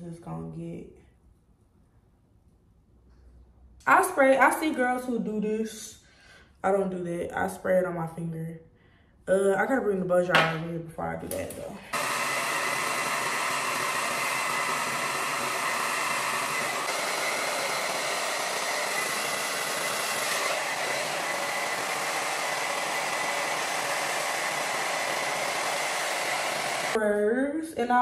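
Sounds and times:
hair dryer blowing: 11.9 - 27.0.

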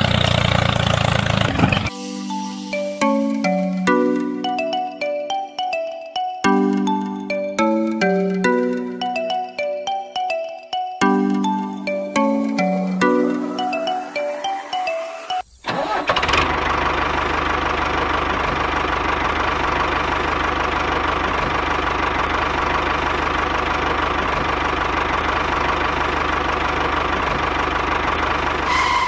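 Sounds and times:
tractor engine chugging: 0.0 - 1.9, 15.7 - 29.0.

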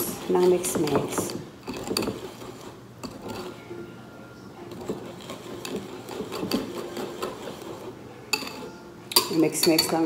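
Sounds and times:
whisk clicking against bowl: 0.0 - 2.4, 4.8 - 10.0.

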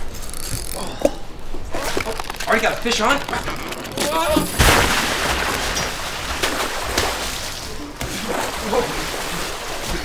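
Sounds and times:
water sloshing: 0.0 - 10.0
person splashing into water: 4.0 - 9.9.

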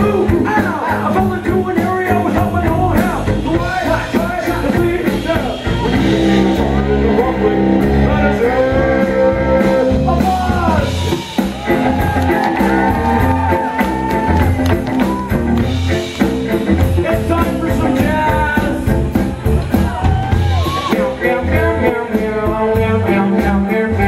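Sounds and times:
person singing: 0.0 - 11.0, 16.9 - 19.0, 19.8 - 24.0
bass guitar: 0.0 - 24.0
drum kit: 0.0 - 24.0.

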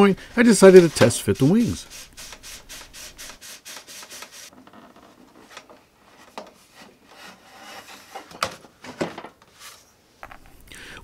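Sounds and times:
metal tube scraping in wood: 0.4 - 8.4
rubs and knocks: 0.4 - 10.4.

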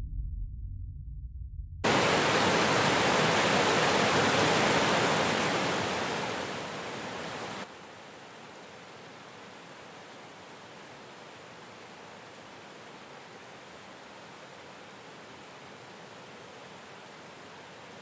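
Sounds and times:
loud rushing hiss: 1.9 - 7.6.

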